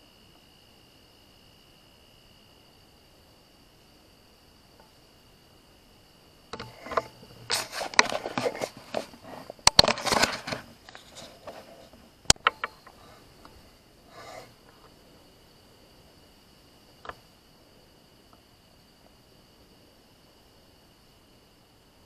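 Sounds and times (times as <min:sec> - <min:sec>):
close rustling and crackling: 0:06.5 - 0:15.0
sharp clicks: 0:12.3 - 0:13.6.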